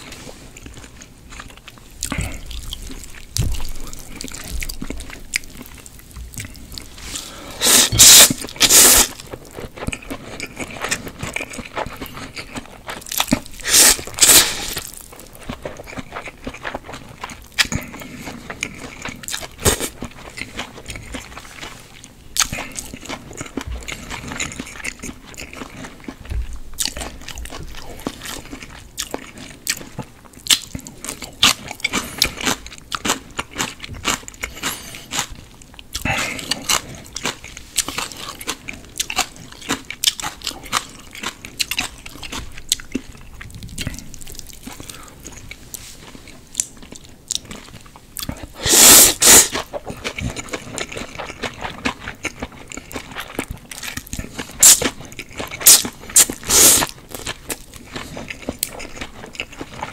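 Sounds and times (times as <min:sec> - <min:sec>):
chewing with wet mouth smacks: 0:00.0 - 0:07.0, 0:08.0 - 0:59.9
slurping noodles: 0:07.0 - 0:09.2, 0:13.6 - 0:14.9, 0:48.6 - 0:49.7, 0:55.6 - 0:56.9.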